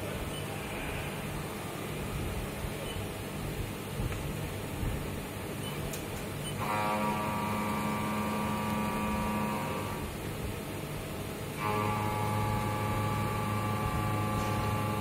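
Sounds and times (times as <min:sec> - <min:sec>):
high cutting whine: 0:06.5 - 0:10.2, 0:11.6 - 0:15.0
milling machine running: 0:06.6 - 0:10.2, 0:11.5 - 0:15.0.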